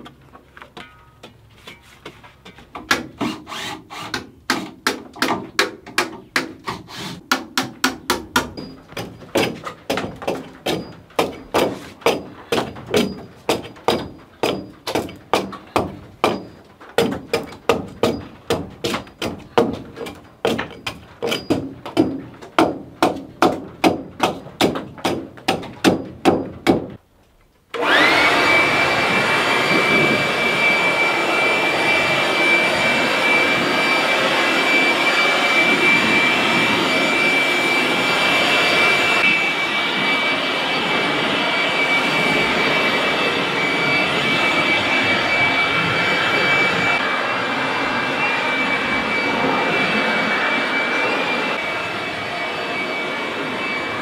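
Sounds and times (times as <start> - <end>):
power tool motor whine: 27.8 - 54.0.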